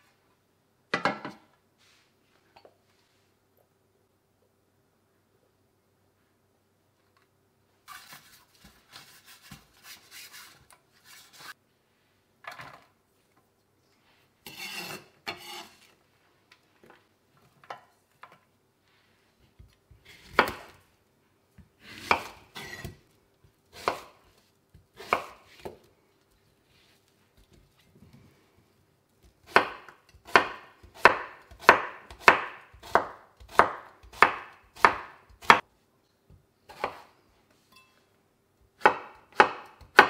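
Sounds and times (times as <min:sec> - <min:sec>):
rustling and scraping in metal pan: 0:14.0 - 0:16.0
knife chopping on wooden board: 0:20.2 - 0:20.8, 0:21.8 - 0:23.0, 0:23.8 - 0:24.2, 0:24.9 - 0:25.8, 0:29.4 - 0:35.6, 0:38.8 - 0:40.0.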